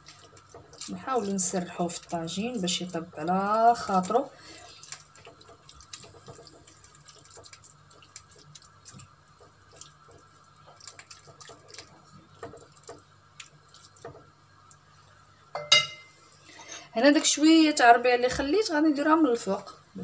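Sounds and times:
mussels sizzling in a clay pot: 0.0 - 10.8
wooden spatula stirring against clay: 0.0 - 14.4.

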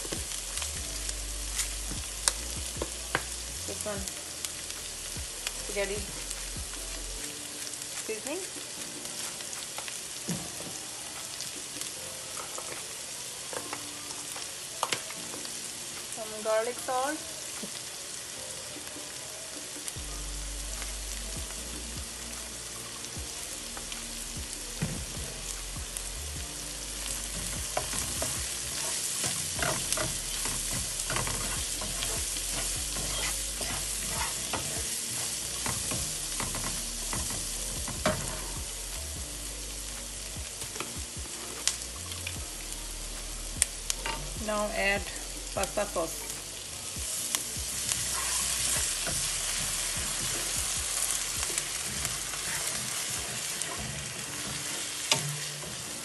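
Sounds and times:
vegetables sizzling in oil: 0.0 - 56.0
wooden spoon scraping a pan: 27.0 - 38.6, 44.0 - 56.0.

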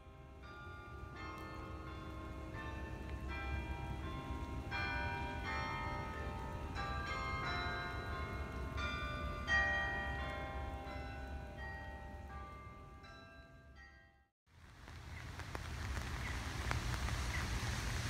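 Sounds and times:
carillon bells playing a tune: 2.6 - 14.3.

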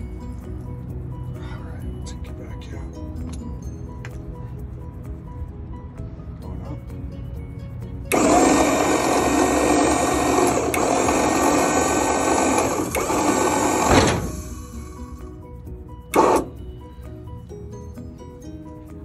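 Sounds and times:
hydraulic pump motor running: 8.1 - 15.4, 16.1 - 16.7.

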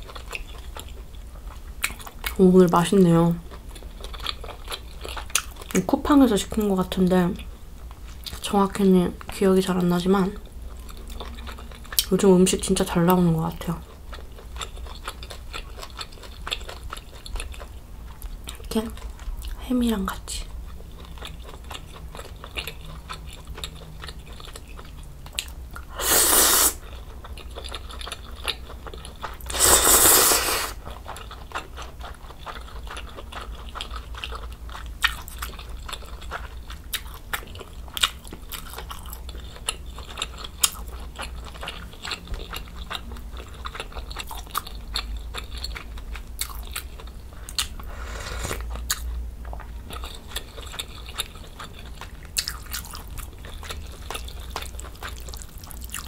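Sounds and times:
soft chewing: 0.0 - 56.0
slurping noodles: 26.0 - 26.8, 29.5 - 30.8, 47.8 - 48.6.

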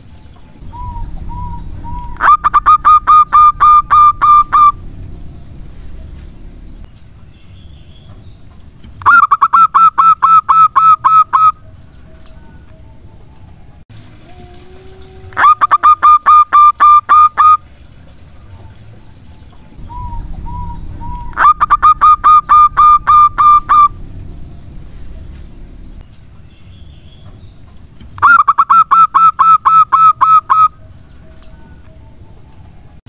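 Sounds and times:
dove staccato cooing: 0.6 - 4.9, 14.5 - 17.6, 19.8 - 24.4.

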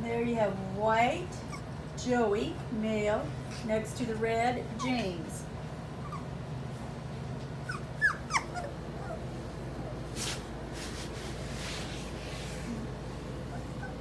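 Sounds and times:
puppy squeaking: 6.0 - 6.3, 7.6 - 9.3, 13.5 - 14.0.

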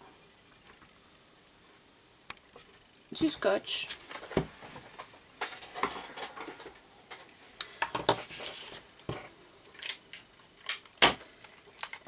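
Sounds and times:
paper and tape handled by hand: 8.2 - 8.8.

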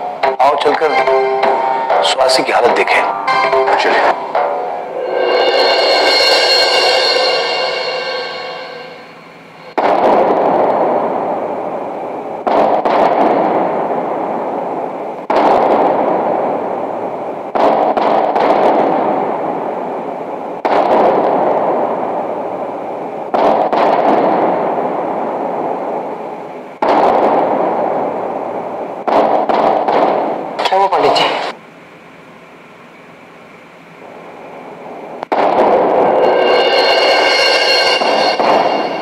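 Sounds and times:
loud crash-like booms: 4.1 - 11.6, 12.4 - 16.8, 20.6 - 22.7, 23.3 - 26.1, 26.8 - 28.4, 35.2 - 39.0.

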